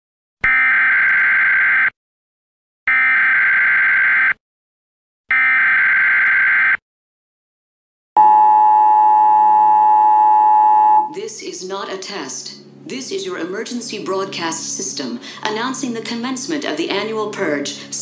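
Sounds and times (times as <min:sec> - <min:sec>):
two-tone alarm signal: 0:05.3 - 0:06.8, 0:08.2 - 0:11.2.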